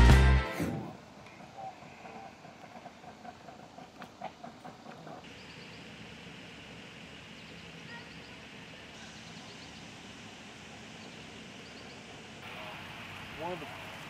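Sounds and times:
background hiss: 0.0s - 14.0s.

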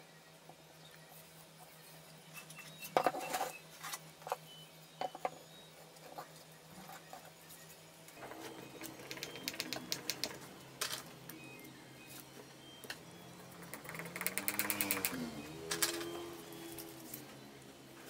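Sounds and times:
screws clicking: 13.7s - 16.2s.

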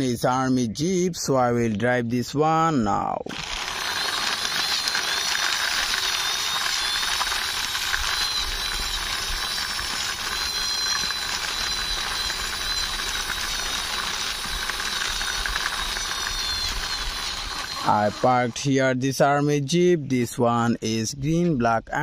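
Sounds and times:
toy wheels rolling on concrete: 3.3s - 18.5s
toy friction motor whirring: 3.3s - 19.0s.

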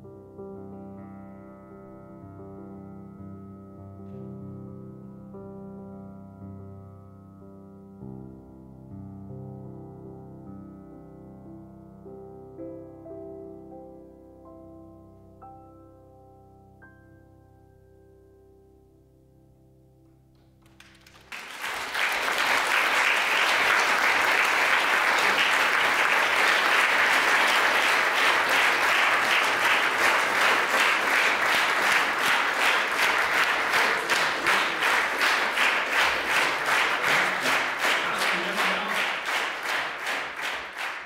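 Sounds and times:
audience applauding: 20.6s - 41.0s
rhythmic unison clapping: 20.6s - 41.0s.

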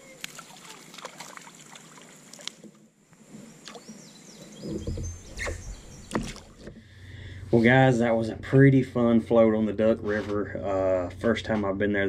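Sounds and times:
river ambience: 0.0s - 11.4s
bird chirps: 3.4s - 6.4s.

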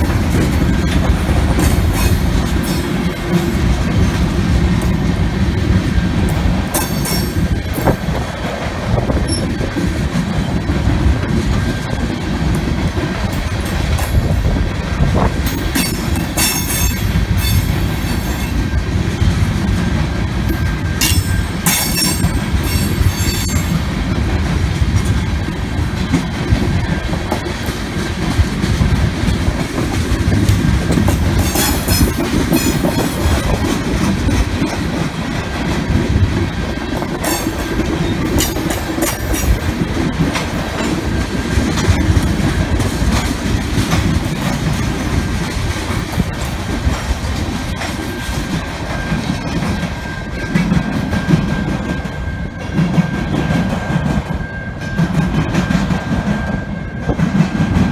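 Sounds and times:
freight train wheels rumbling: 0.0s - 57.9s
wheel squeal and screeching clanks: 20.5s - 23.8s.

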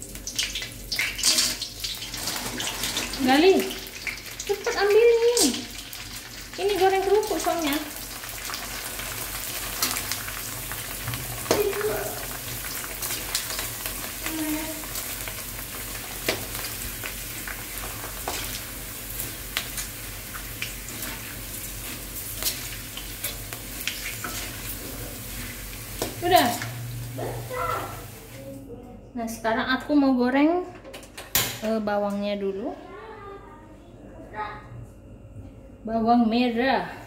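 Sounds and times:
crackers sizzling in hot oil: 0.0s - 28.4s
metal spatula stirring: 20.8s - 26.7s.

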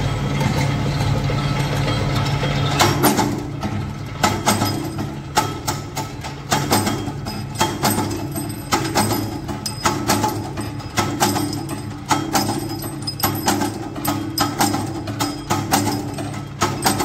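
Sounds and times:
sharp metallic clank: 4.2s - 17.0s.

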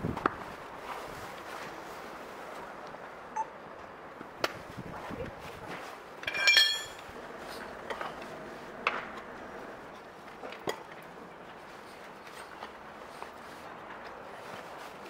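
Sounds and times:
tyre levers clinking on rim: 6.2s - 7.1s.

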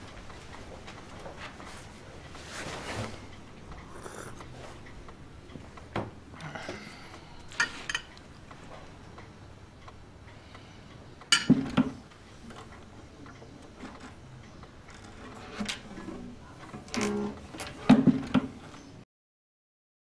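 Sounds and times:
dishes clattering: 11.3s - 12.0s.

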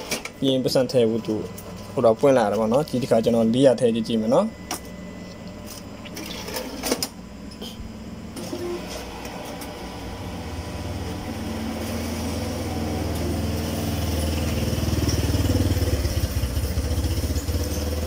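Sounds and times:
banknote counter whirring: 0.0s - 7.2s, 8.3s - 18.0s.

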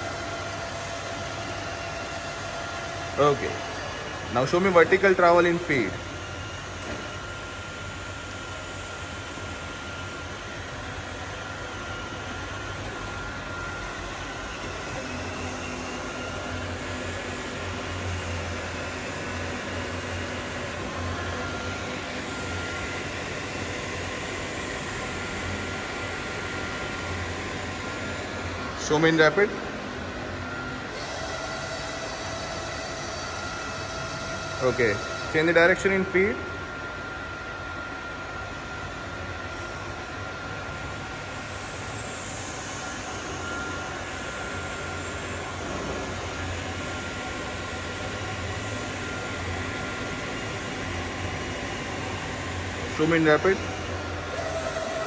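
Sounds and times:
milling machine droning: 0.0s - 55.0s.

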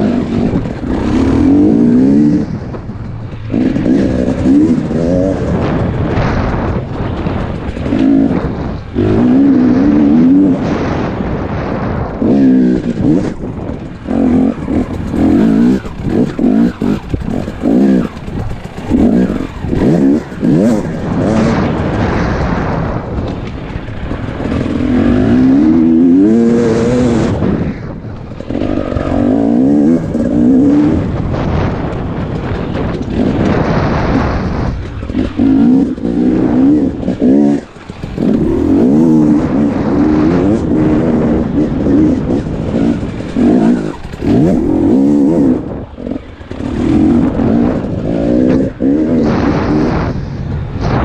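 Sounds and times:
dirt bike engine revving: 0.0s - 51.0s.

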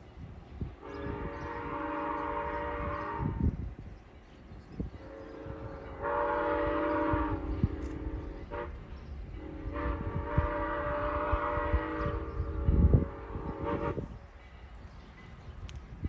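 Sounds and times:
train horn blasts: 0.7s - 3.8s, 4.9s - 14.4s.

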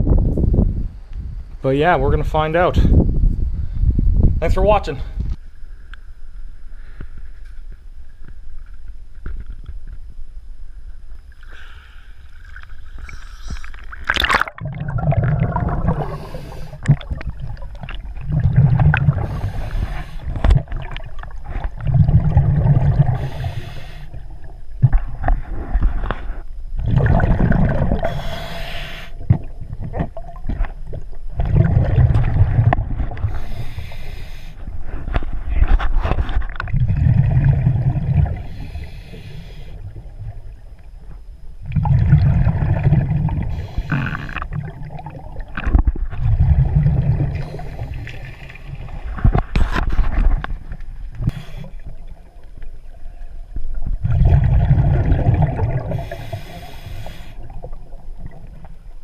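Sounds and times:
scuba breathing through regulator: 11.4s - 14.0s, 15.7s - 17.1s, 18.9s - 20.5s, 22.6s - 24.3s, 27.8s - 29.3s, 33.2s - 35.1s, 38.3s - 39.8s, 43.4s - 44.5s, 47.2s - 48.6s, 51.2s - 51.9s, 55.8s - 57.5s
exhaled bubbles bursting: 12.3s - 25.9s, 26.8s - 28.4s, 29.2s - 33.5s, 36.4s - 38.8s, 41.6s - 56.5s.

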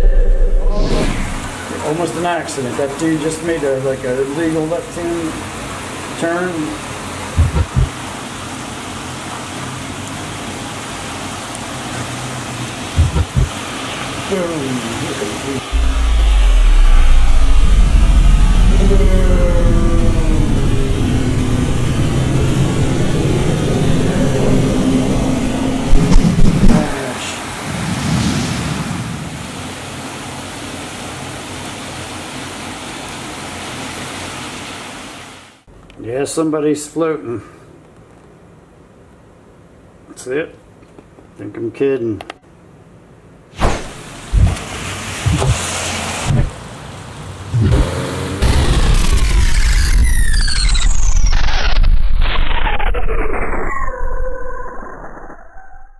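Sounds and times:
short low thumps: 0.0s - 1.6s, 7.4s - 7.9s, 13.0s - 13.5s, 15.7s - 22.0s, 44.3s - 44.6s, 45.3s - 45.6s
heavy rain hissing: 0.0s - 35.3s
car tyres swishing through water: 43.9s - 48.3s.

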